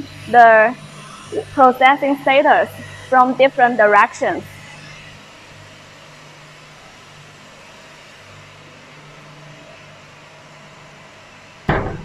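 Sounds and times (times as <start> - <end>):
machine humming: 0.0 - 5.7, 11.4 - 12.0
metal door bang: 11.7 - 12.0.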